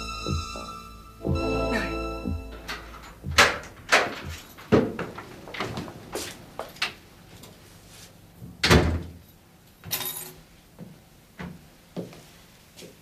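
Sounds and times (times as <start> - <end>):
front door shutting: 2.4 - 7.0
door rattle: 2.6 - 7.0
soft footsteps: 2.9 - 8.3, 10.8 - 13.0.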